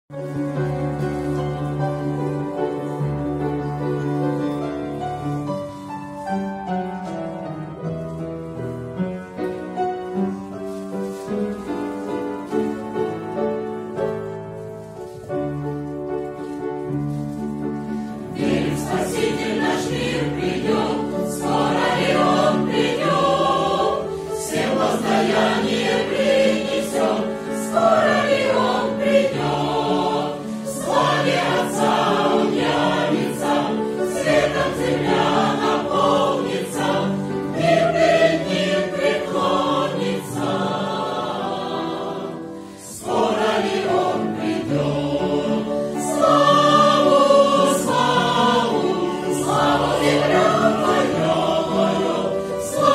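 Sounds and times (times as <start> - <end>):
choir singing a hymn: 0.2 - 6.0, 17.8 - 52.9.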